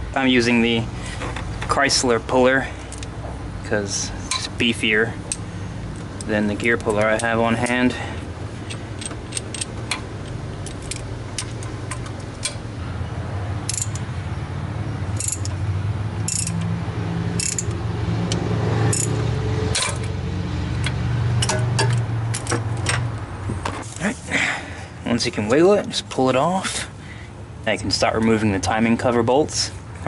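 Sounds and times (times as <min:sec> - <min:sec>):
hand ratchet clicking: 0:13.6 - 0:14.1, 0:15.2 - 0:15.6, 0:16.2 - 0:16.7, 0:17.4 - 0:19.2.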